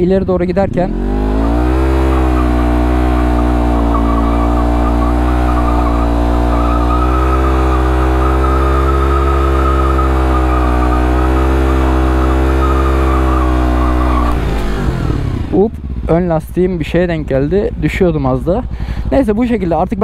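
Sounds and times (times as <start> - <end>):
motorcycle engine revving high: 0.6 - 19.6
tyre squealing on road: 1.4 - 15.1.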